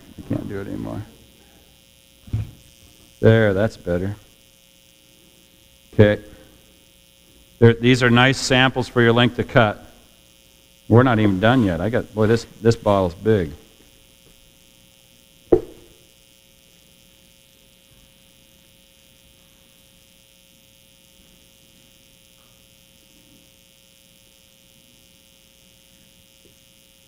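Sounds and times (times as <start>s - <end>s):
electrical mains hum: 0.0s - 27.0s
sharp knock: 15.5s - 16.0s.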